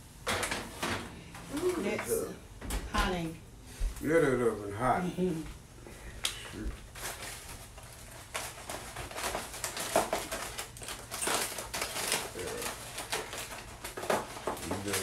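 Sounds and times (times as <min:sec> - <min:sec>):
plastic water bottle crinkling: 0:06.9 - 0:15.0.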